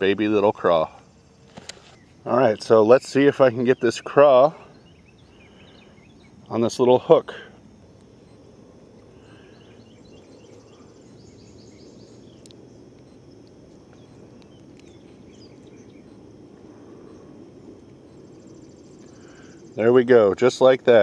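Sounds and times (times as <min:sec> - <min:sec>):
birds chirping: 0:00.0 - 0:21.0
insects trilling: 0:00.0 - 0:21.0
low background rumble: 0:00.0 - 0:21.0.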